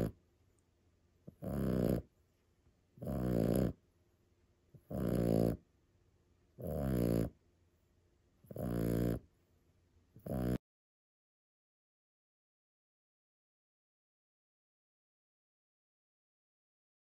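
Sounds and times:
puppy snoring: 0:00.0 - 0:00.2, 0:01.3 - 0:02.1, 0:03.0 - 0:03.8, 0:04.8 - 0:05.7, 0:06.6 - 0:07.4, 0:08.4 - 0:09.3, 0:10.2 - 0:10.6.

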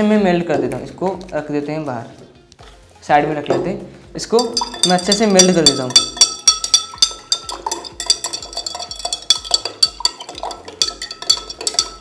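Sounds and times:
spoon clinking in glass: 0:04.4 - 0:12.0.

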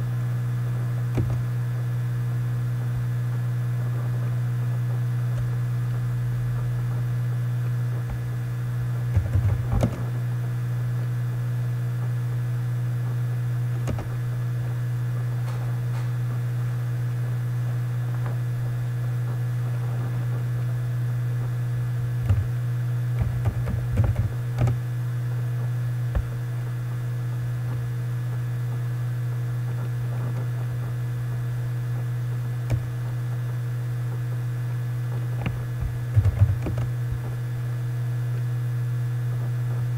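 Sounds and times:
low electrical hum: 0:00.0 - 0:39.9
computer keyboard typing: 0:36.1 - 0:36.8.

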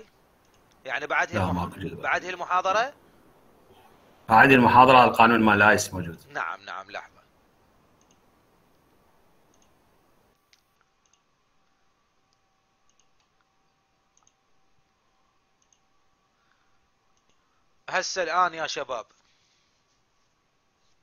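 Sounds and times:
computer mouse clicks: 0:00.4 - 0:00.8, 0:08.0 - 0:08.3, 0:09.4 - 0:13.5, 0:14.1 - 0:14.5, 0:15.6 - 0:15.9, 0:17.1 - 0:17.5.

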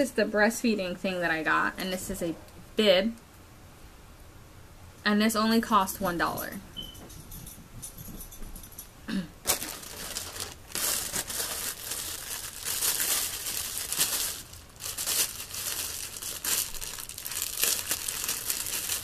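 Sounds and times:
plastic bag crinkling: 0:09.4 - 0:19.0.

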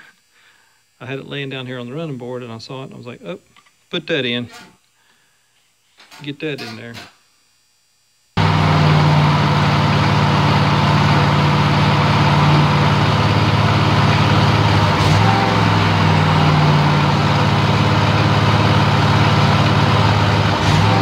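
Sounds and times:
riding mower engine running: 0:08.4 - 0:21.0.

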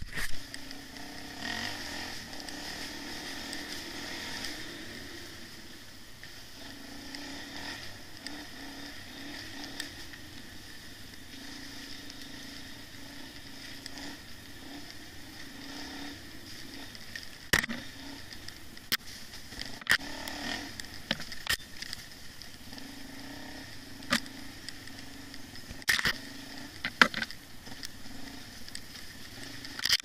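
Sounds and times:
bike rolling and rattling on dirt: 0:00.0 - 0:30.0.

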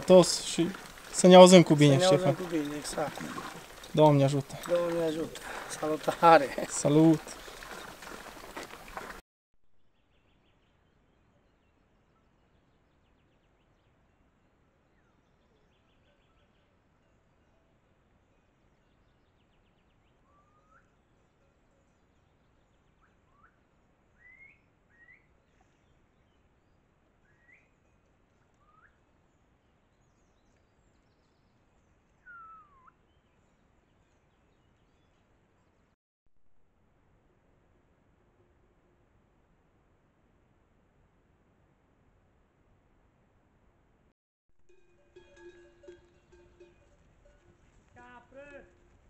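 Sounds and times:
faint bird chirps: 0:18.3 - 0:26.3, 0:27.2 - 0:29.1, 0:32.2 - 0:33.6.

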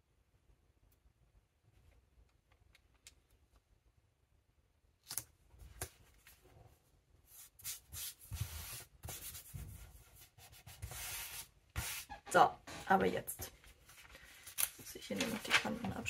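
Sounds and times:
hands rubbing paper: 0:07.3 - 0:12.2
paper crackling: 0:13.5 - 0:16.0.

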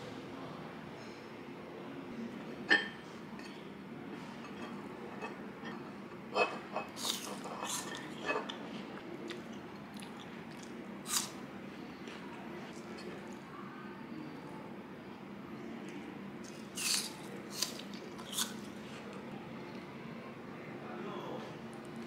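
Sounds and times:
dishes tapping and clinking: 0:02.7 - 0:03.6.

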